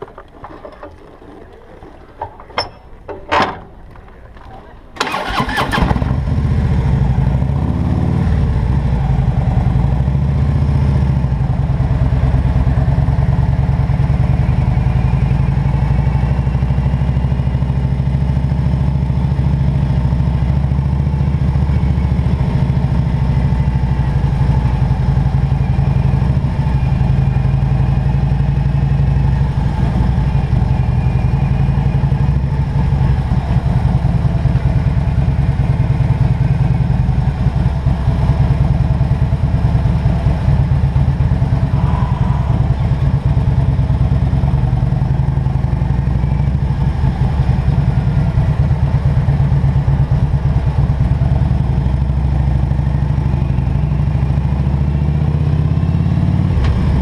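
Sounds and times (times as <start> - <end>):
motorcycle engine rumbling: 0.0 - 57.0.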